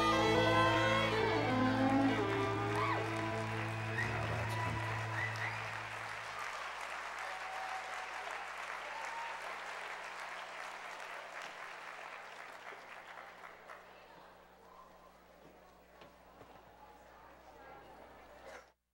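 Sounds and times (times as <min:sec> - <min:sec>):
held music notes: 0:00.0 - 0:05.9
audience applauding: 0:00.0 - 0:14.1.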